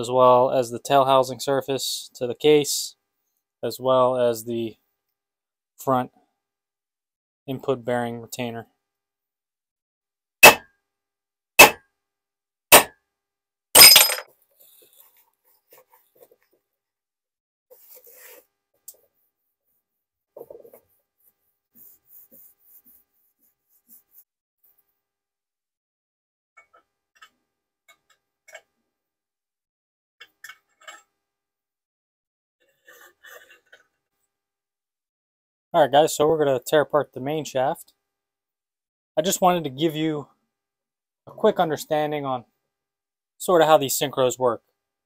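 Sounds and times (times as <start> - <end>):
metallic clatter: 13.8 - 14.3.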